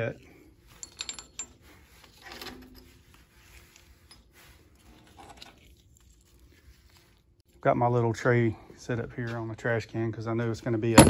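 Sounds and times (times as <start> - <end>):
metal bolts clinking: 0.7 - 2.9.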